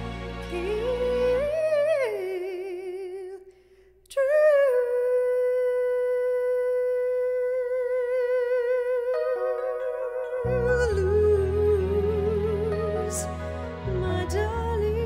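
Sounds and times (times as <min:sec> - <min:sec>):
low musical backing: 0:00.0 - 0:03.0, 0:08.4 - 0:15.0
woman singing with vibrato: 0:00.0 - 0:03.5, 0:04.1 - 0:15.0.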